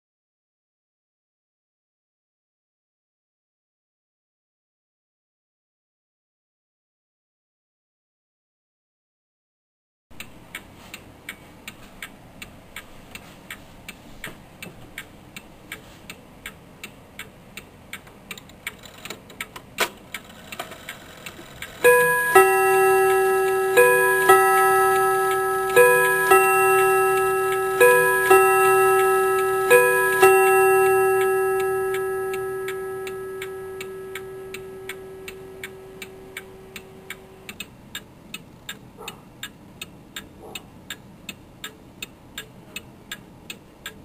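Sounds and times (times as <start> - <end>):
clock ticking: 10.2 - 44.0
clock striking cymbal tones: 21.6 - 37.5.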